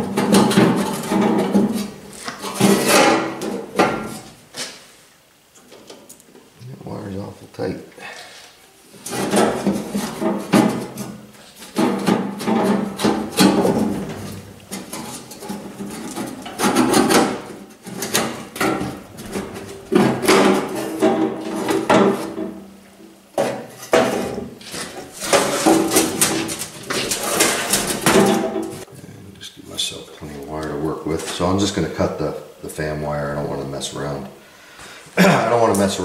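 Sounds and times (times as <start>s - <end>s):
knocks and clatter: 0.0s - 4.3s, 9.0s - 22.7s, 23.3s - 28.9s.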